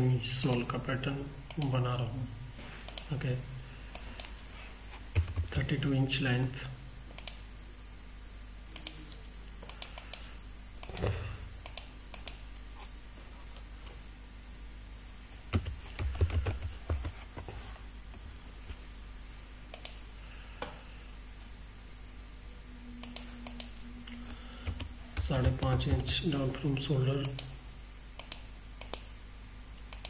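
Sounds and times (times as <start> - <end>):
keyboard and mouse clicks: 7.2 - 7.4, 10.8 - 12.4, 19.7 - 20.0, 23.0 - 23.7, 28.2 - 29.1.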